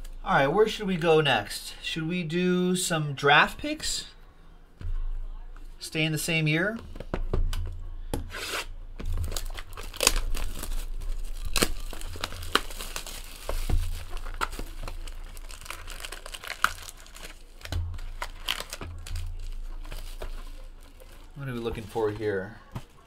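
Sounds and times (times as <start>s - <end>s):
card packs handled: 8.5s - 23.0s
plastic shrink wrap crinkling: 8.5s - 23.0s.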